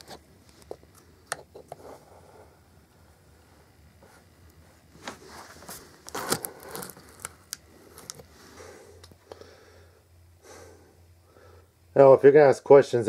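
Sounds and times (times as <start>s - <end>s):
rustling: 4.0s - 9.1s.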